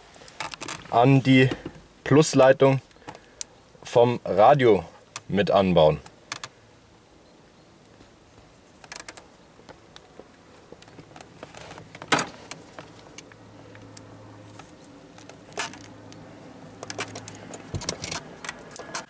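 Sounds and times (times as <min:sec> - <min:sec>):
wire handling clicks and rustling: 0:00.1 - 0:01.8, 0:06.0 - 0:06.5, 0:07.8 - 0:19.0.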